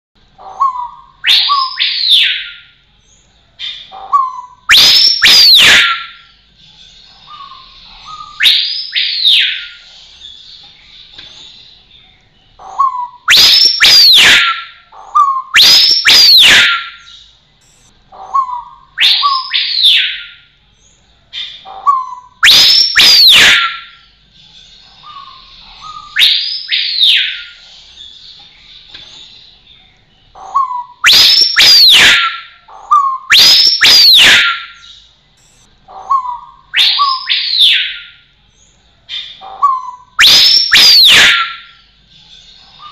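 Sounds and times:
bird whistled calls: 0:00.4 - 0:02.7, 0:03.6 - 0:06.3, 0:07.2 - 0:10.4, 0:12.6 - 0:20.5, 0:21.4 - 0:24.1, 0:25.0 - 0:28.1, 0:30.4 - 0:38.2, 0:39.1 - 0:41.8.

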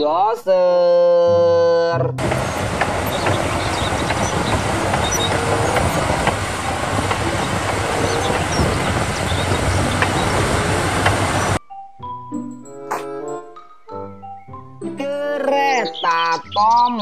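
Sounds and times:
bulldozer diesel engine: 0:02.2 - 0:11.6
steel tracks clanking: 0:02.2 - 0:11.6.

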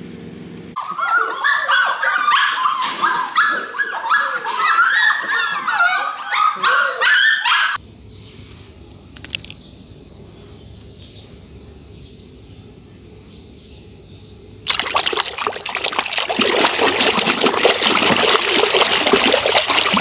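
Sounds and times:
puppies yapping and whining: 0:00.8 - 0:07.8.

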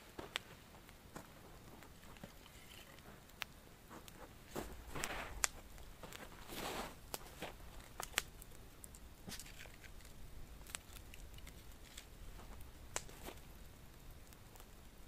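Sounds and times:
campfire crackling: 0:00.0 - 0:15.0
sticks laid on fire: 0:01.6 - 0:13.5.

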